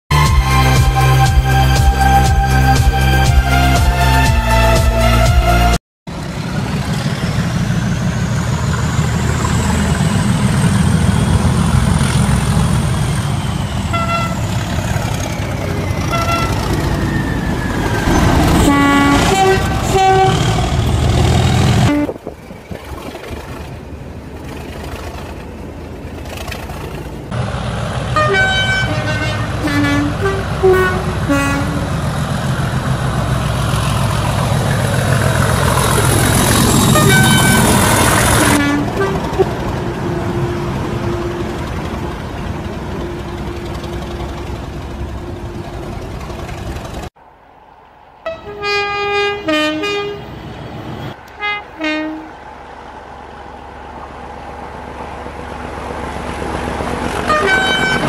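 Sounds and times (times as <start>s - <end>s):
locomotive horn toots: 0.1s - 5.8s, 13.9s - 14.8s, 15.9s - 17.1s, 17.8s - 22.3s, 28.1s - 32.1s, 35.8s - 45.9s, 48.2s - 50.4s, 51.3s - 52.4s, 57.2s - 58.0s
diesel locomotive engine droning: 0.1s - 58.0s.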